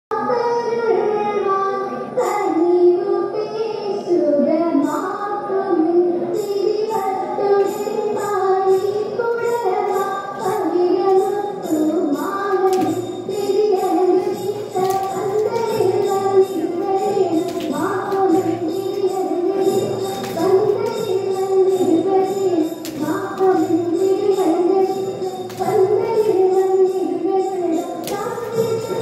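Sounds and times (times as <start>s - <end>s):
girls singing in unison: 4.7s - 29.0s
sharp beat strikes: 12.6s - 26.2s.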